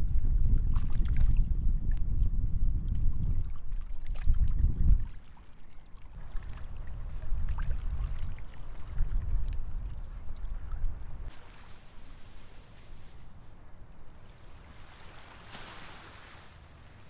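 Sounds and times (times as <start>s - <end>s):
small water splashes: 0.6s - 1.4s, 3.3s - 12.5s, 14.2s - 17.0s
sea surf washing in: 14.3s - 17.0s.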